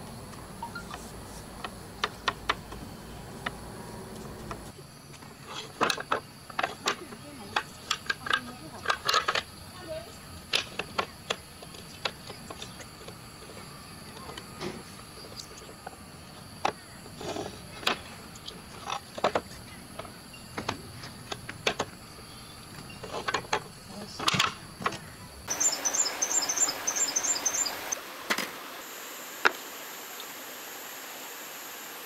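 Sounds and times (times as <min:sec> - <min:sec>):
wooden pieces clacking together: 0:05.1 - 0:09.6, 0:10.5 - 0:14.4, 0:16.6 - 0:22.0, 0:22.7 - 0:25.1
rapid high chirping: 0:25.5 - 0:28.0.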